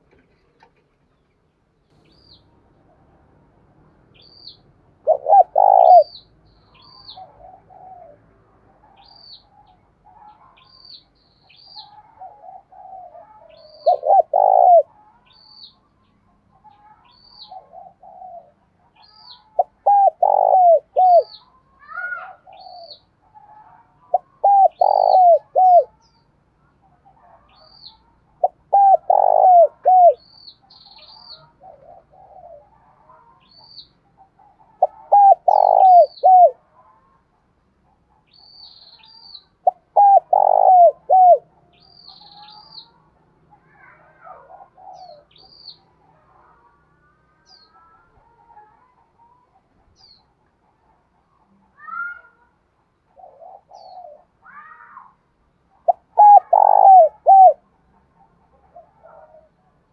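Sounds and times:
dove cooing: 5.0s - 6.2s, 6.8s - 8.2s, 11.8s - 15.0s, 17.4s - 21.4s, 24.1s - 26.0s, 28.4s - 30.2s, 31.4s - 32.9s, 34.4s - 36.6s, 39.6s - 41.5s, 43.8s - 45.4s, 53.1s - 54.4s, 55.8s - 57.6s, 58.5s - 59.5s.

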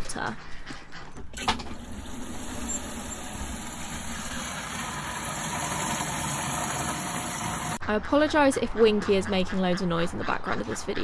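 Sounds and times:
water running into watering can: 1.4s - 7.8s.

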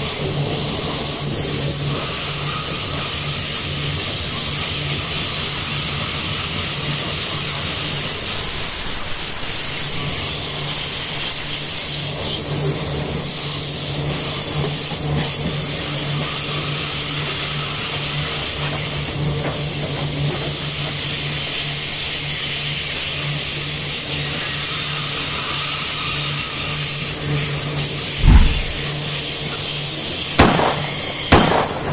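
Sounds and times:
train wheels rumbling on rails: 28.2s - 28.9s.

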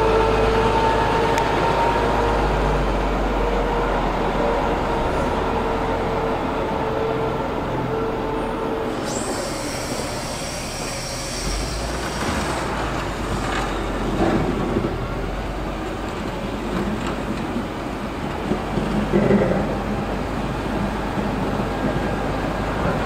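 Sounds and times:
diesel engine running: 0.0s - 23.0s
high metallic squeal: 7.9s - 14.2s.

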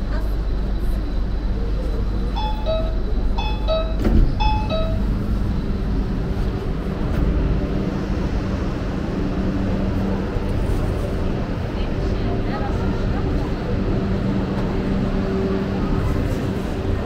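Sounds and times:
metro train rumbling: 0.0s - 17.0s
low hum: 0.4s - 11.2s.

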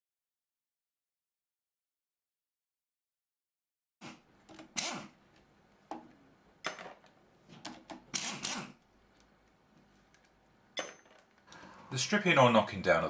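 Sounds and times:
pneumatic impact wrench bursts: 4.0s - 5.2s, 8.1s - 8.8s.

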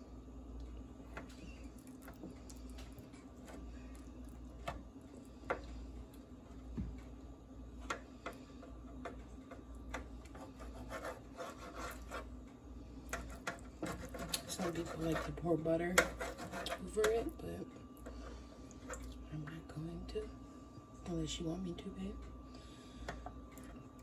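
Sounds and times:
knife scraping a baking sheet: 10.4s - 12.3s, 13.1s - 17.2s.

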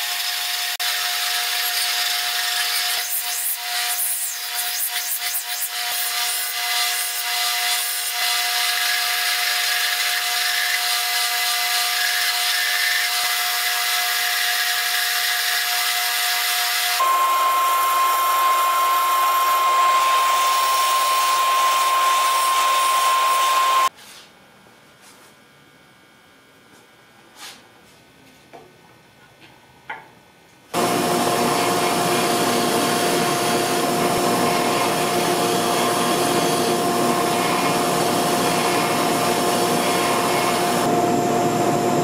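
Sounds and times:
belt sander grinding metal: 14.2s - 23.9s.

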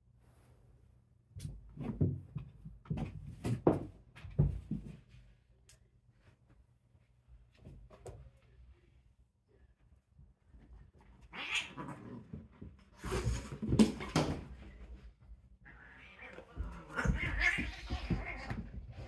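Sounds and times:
cats scuffling and thumping: 1.3s - 5.5s, 10.1s - 19.0s
cat vocal sounds: 11.2s - 12.4s, 15.6s - 18.8s.

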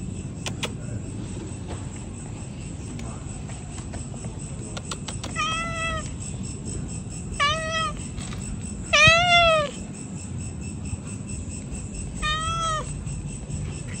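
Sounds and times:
cat meowing: 5.3s - 6.1s, 7.4s - 8.2s, 8.9s - 9.8s, 12.2s - 12.9s.

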